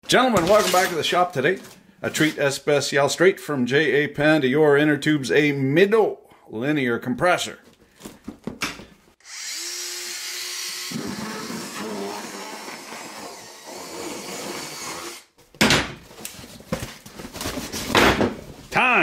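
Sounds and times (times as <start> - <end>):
power tool cutting cardboard: 9.2 - 15.3.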